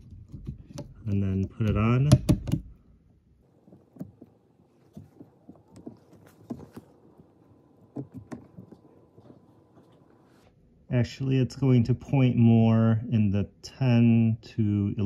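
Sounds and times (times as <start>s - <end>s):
plastic clicks and knocks: 0.0s - 2.8s, 7.9s - 8.8s.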